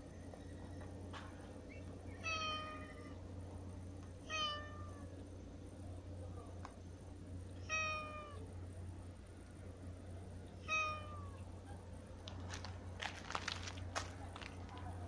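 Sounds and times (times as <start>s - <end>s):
cat meowing: 2.2s - 3.2s, 4.2s - 5.1s, 7.6s - 8.4s, 10.6s - 11.4s.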